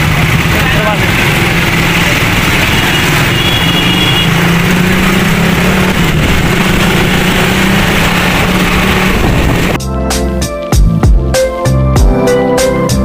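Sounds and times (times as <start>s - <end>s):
vehicle engine running: 0.0s - 9.8s
passing street traffic: 0.0s - 13.0s.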